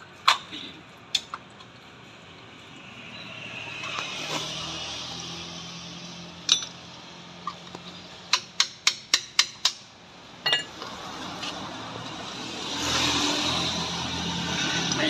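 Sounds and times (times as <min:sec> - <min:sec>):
sharp metallic taps: 0:08.3 - 0:09.9
ringing metal clink: 0:10.4 - 0:10.7.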